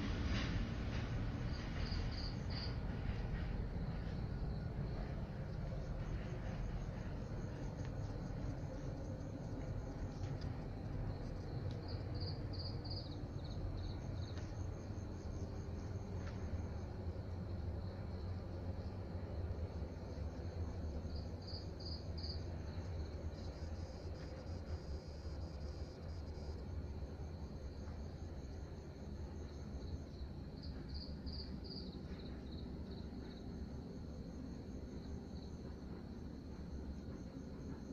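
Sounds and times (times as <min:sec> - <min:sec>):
low rumble: 0:00.0 - 0:25.1
steady low hum: 0:00.0 - 0:37.9
insect trill: 0:01.1 - 0:37.9.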